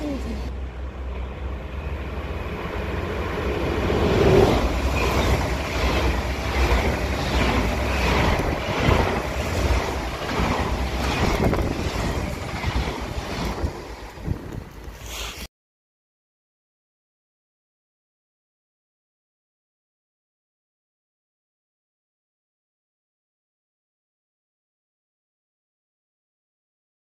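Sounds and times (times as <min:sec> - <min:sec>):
train passing at speed: 0:00.0 - 0:15.5
train wheels clacking: 0:03.9 - 0:15.1
wind rumble on microphone: 0:07.6 - 0:15.0.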